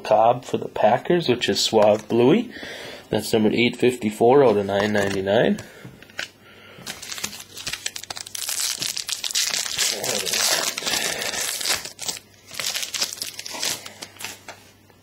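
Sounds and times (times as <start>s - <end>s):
foil wrapper crinkling: 6.1s - 14.6s.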